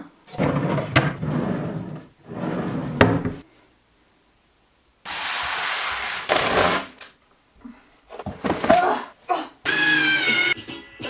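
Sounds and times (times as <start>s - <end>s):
wooden drawers sliding on runners: 0.3s - 3.4s
drawer shutting knock: 3.0s - 3.4s.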